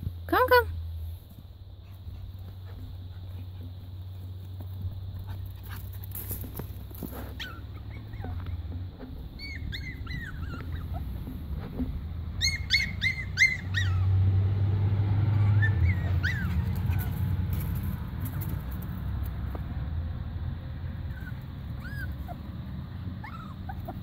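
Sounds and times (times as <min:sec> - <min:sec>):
puppy whimpering: 0:07.3 - 0:08.8, 0:09.4 - 0:14.1, 0:15.3 - 0:17.3, 0:21.1 - 0:22.5, 0:23.2 - 0:24.0.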